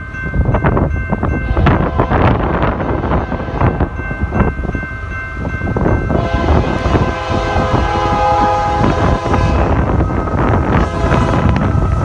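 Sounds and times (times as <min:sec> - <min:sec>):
freight train rumbling past: 0:00.0 - 0:12.0
wind buffeting microphone: 0:00.0 - 0:12.0
locomotive air horn chord: 0:01.4 - 0:04.0, 0:06.1 - 0:12.0.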